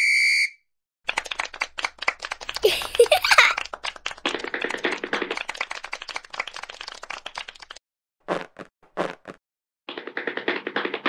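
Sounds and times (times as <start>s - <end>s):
small group clapping: 1.1s - 7.8s.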